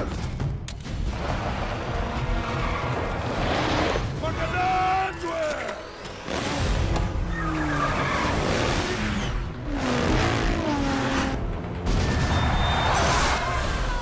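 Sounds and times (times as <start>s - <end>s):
vehicle engines: 6.0s - 13.7s.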